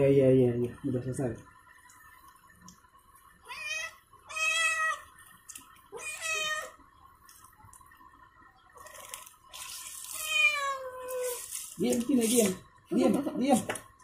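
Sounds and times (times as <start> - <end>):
cat meowing: 3.4 - 5.1, 5.9 - 6.8, 10.1 - 11.4.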